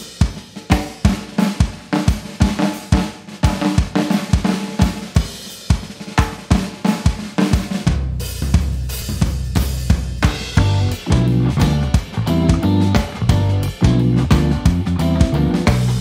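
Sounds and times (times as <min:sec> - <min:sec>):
drum kit beat: 0:00.0 - 0:16.0
full band held low notes: 0:07.9 - 0:16.0
bass and keys: 0:08.1 - 0:16.0.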